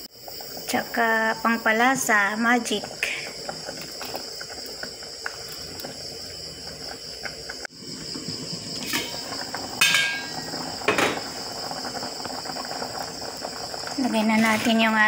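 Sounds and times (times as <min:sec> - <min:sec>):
insects trilling: 0:00.0 - 0:15.0
metal pot lid clanking: 0:08.8 - 0:11.2.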